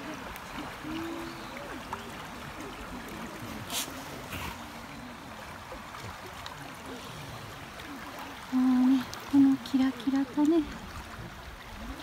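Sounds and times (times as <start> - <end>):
river babbling over pebbles: 0.0 - 12.0
hiss of water: 3.2 - 5.4.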